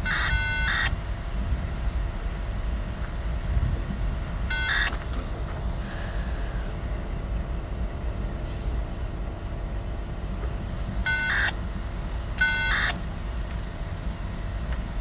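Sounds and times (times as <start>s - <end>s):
steady low rumble: 0.0s - 15.0s
locomotive horn blasts: 11.0s - 11.6s, 12.4s - 13.0s.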